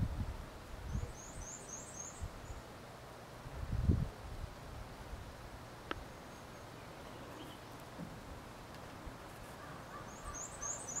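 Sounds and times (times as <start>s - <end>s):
small bird chirping: 0.9s - 2.7s, 6.2s - 7.9s, 9.6s - 11.0s.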